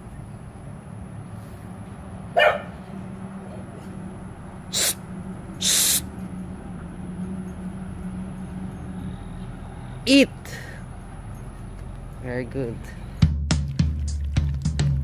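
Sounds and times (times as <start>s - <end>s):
dog barking: 2.4s - 2.8s
brief hissing: 4.7s - 5.0s, 5.6s - 6.1s.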